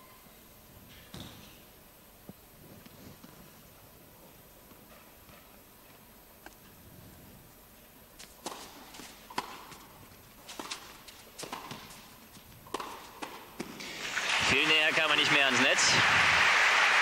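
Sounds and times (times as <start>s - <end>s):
shoes squeaking on court: 1.0s - 1.7s, 8.2s - 14.1s
tennis ball bounces: 8.2s - 14.0s
tennis racket strikes: 8.2s - 14.0s.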